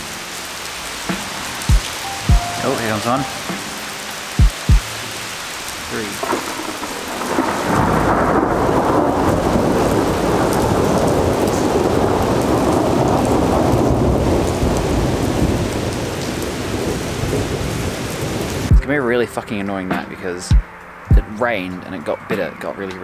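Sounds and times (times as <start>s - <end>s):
heavy rain hiss: 0.0s - 18.8s
thunder rumbling: 5.8s - 18.9s.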